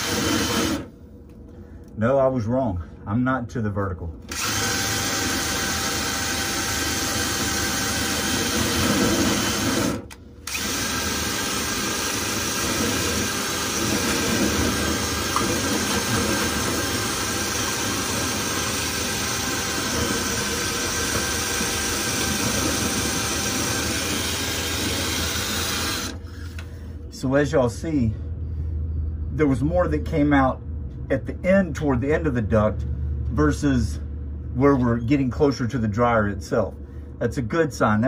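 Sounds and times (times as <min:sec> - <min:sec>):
power drill spinning cleaning rod: 0:00.0 - 0:00.9, 0:04.3 - 0:26.6.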